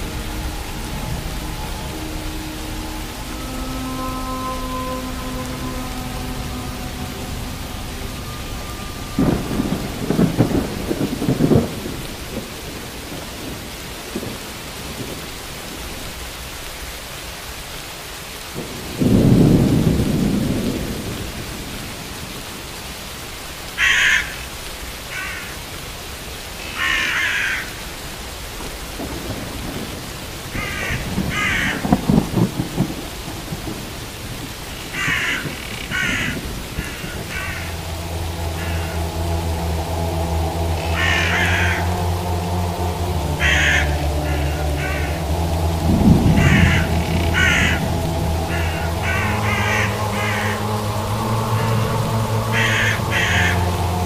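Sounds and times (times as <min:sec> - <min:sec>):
music: 0:00.0 - 0:11.9, 0:35.0 - 0:54.0
thunder rolling: 0:00.0 - 0:17.1, 0:18.4 - 0:22.8, 0:28.6 - 0:54.0
steady rain: 0:00.0 - 0:54.0
bird calling: 0:40.8 - 0:42.0, 0:46.1 - 0:50.8.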